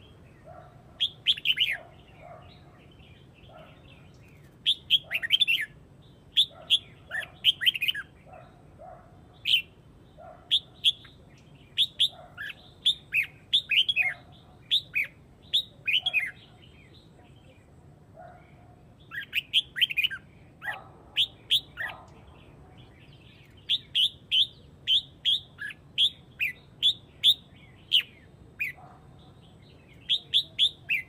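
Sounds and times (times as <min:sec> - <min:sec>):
bird chirpy whistled calls: 0:23.4 - 0:28.8.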